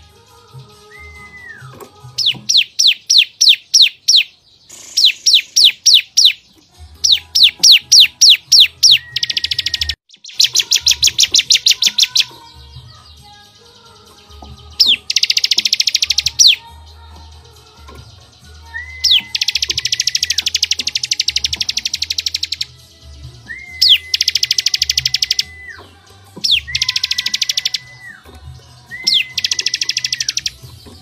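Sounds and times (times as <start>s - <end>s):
songbirds singing: 0.0s - 31.0s
buzzy high bird trills: 0.8s - 17.0s, 17.6s - 22.8s, 23.6s - 31.0s
falling bird whistles: 0.9s - 6.4s, 7.0s - 12.3s, 18.6s - 22.7s, 23.4s - 30.6s.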